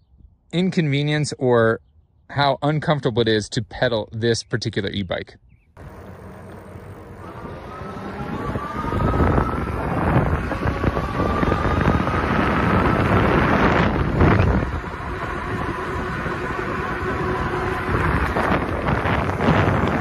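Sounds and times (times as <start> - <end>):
wind buffeting microphone: 5.4 - 20.0
faint motor whine: 5.8 - 20.0.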